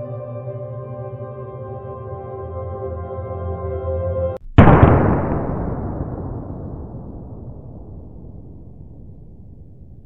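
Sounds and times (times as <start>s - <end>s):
explosion boom rumble: 4.4s - 10.0s.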